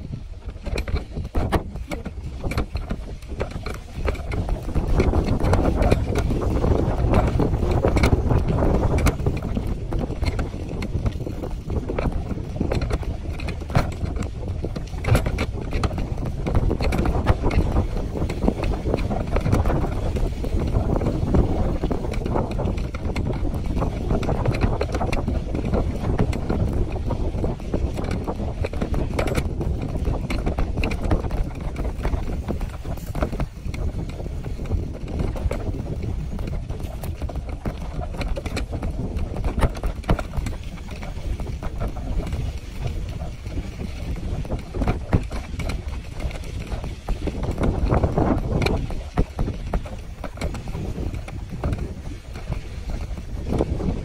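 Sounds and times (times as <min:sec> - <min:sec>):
bicycle knocks and rattles: 0:00.0 - 0:54.0
wind buffeting microphone: 0:00.0 - 0:54.0.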